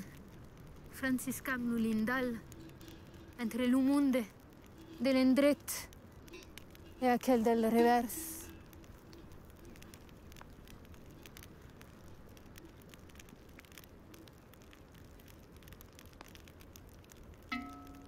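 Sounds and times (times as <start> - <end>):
campfire crackling: 0.0 - 18.0.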